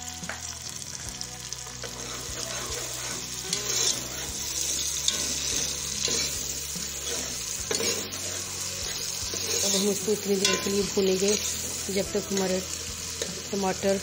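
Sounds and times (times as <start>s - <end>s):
food sizzling in hot oil: 0.0s - 14.0s
metal spoon knocking pot: 10.4s - 11.0s.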